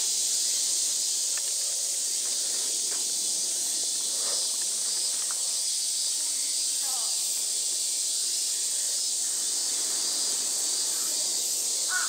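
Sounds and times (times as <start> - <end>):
cicadas chorus: 0.0 - 12.0
faint ticks: 1.2 - 3.1, 4.3 - 5.5.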